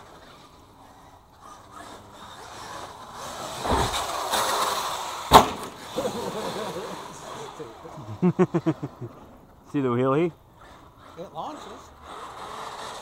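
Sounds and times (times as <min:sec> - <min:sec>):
rc truck motor and tyres: 0:00.0 - 0:13.0
truck landing thump: 0:03.6 - 0:04.2, 0:05.3 - 0:05.8.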